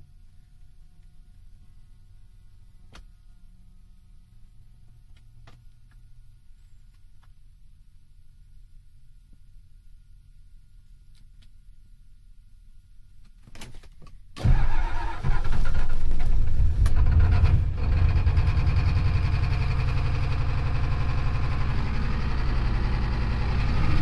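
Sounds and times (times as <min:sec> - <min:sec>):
diesel engine idling: 0:14.4 - 0:24.0.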